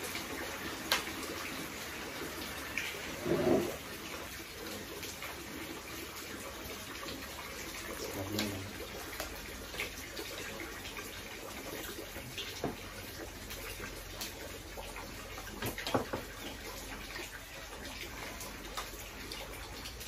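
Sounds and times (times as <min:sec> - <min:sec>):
rain hissing: 0:00.0 - 0:06.6.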